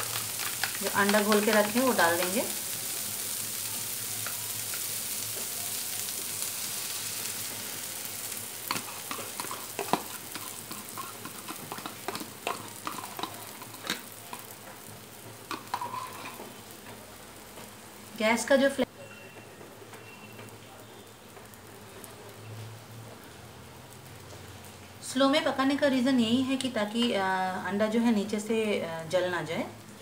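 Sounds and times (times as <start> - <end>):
vegetables sizzling in a frying pan: 0.0 - 30.0
spoon scraping a bowl: 8.7 - 14.4, 15.5 - 16.4.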